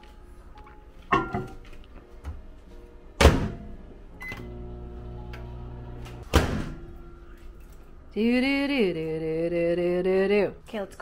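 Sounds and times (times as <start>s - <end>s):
microwave humming: 1.1s - 7.3s
microwave beep: 4.2s - 4.6s.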